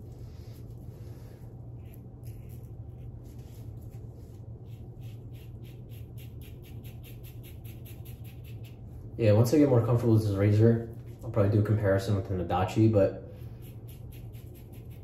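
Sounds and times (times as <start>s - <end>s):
steady low hum: 0.0s - 15.0s
razor scraping stubble: 1.7s - 9.1s, 13.4s - 15.0s.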